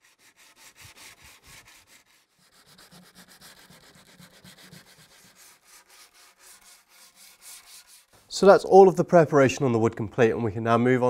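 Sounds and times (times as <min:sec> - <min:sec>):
sandpaper scratching wood: 0:00.0 - 0:08.2.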